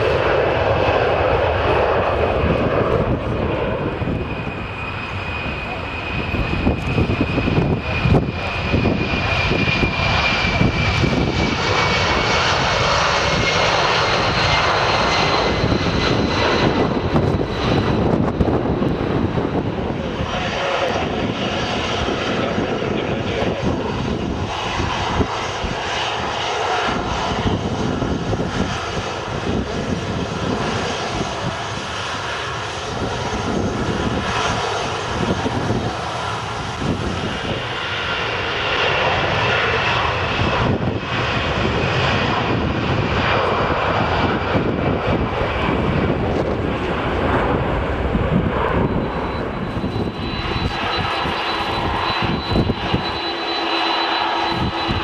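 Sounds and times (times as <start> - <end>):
jet engines roaring: 0.0 - 55.0
jet plane taxiing: 0.0 - 55.0.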